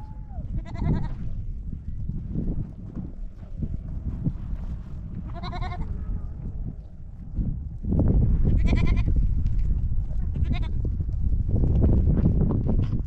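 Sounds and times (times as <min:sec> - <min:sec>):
low rumbling noise: 0:00.0 - 0:13.0
goats bleating: 0:00.6 - 0:01.2, 0:05.3 - 0:05.9.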